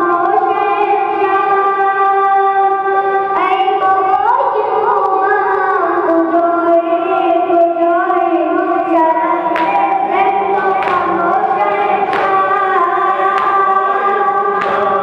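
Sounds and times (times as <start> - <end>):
boy reciting into a microphone: 0.0 - 15.0
voices singing in chorus: 8.4 - 15.0
hand slaps keeping a beat: 9.5 - 15.0.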